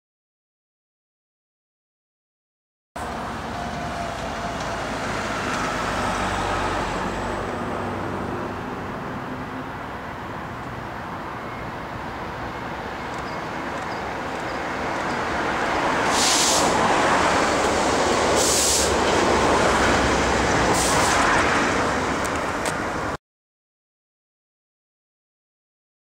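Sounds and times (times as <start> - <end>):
diesel locomotive rumble: 3.0 - 23.2
short hissing bursts: 16.0 - 16.8, 18.4 - 19.0, 20.7 - 21.2.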